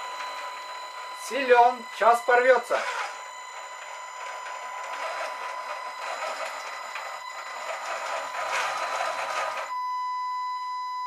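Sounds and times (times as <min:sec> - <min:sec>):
small winch whirring under load: 0:02.5 - 0:09.7.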